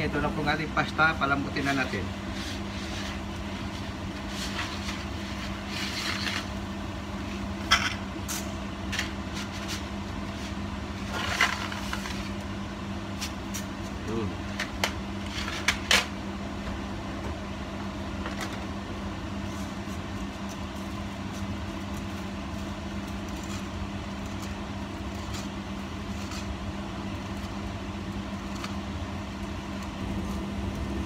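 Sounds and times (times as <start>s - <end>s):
constant low hum: 0.0s - 31.0s
pot of water boiling: 19.0s - 31.0s.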